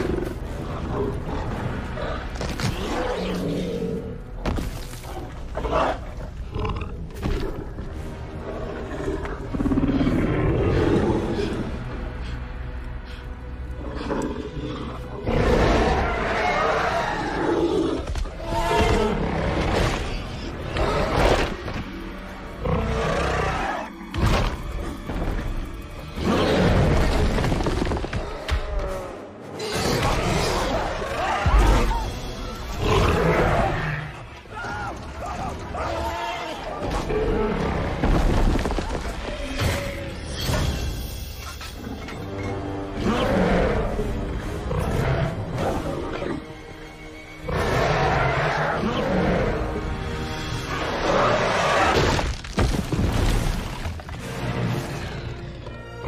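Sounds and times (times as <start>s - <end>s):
orchestral score: 0.0s - 52.4s, 53.0s - 56.0s
dinosaur growling and roaring: 5.5s - 11.8s, 30.2s - 34.2s, 42.7s - 46.4s, 47.4s - 52.0s.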